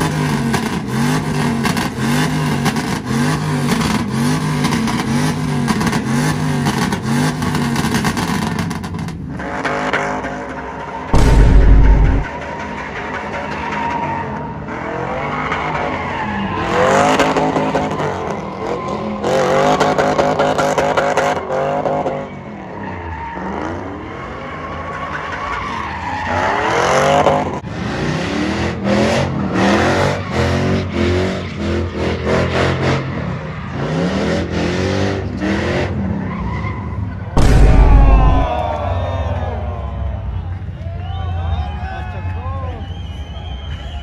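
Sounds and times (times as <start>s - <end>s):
truck engines revving: 0.0s - 12.3s.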